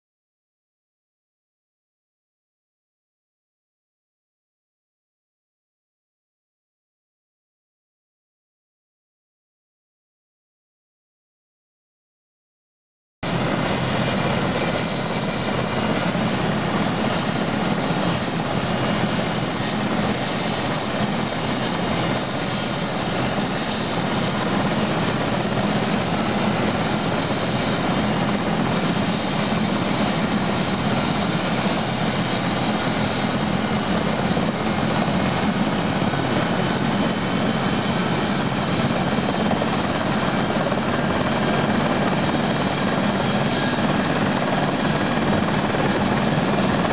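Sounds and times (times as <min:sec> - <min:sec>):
turbine engine whine: 0:13.2 - 0:46.9
helicopter rotor spinning up: 0:13.3 - 0:46.9.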